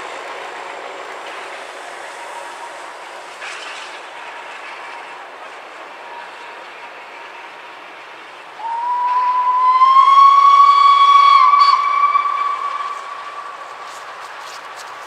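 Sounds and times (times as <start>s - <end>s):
steady hiss: 0.0s - 15.0s
steam locomotive whistle: 8.6s - 14.5s.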